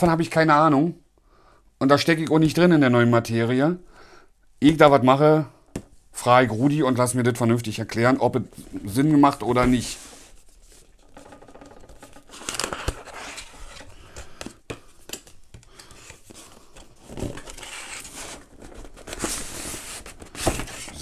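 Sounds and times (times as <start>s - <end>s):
cardboard scraping and rustling: 8.7s - 14.0s, 16.0s - 21.0s.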